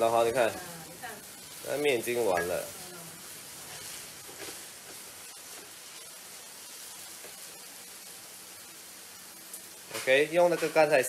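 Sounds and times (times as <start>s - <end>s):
noodles sizzling in a wok: 0.0s - 11.0s
spatula stirring: 1.5s - 7.6s.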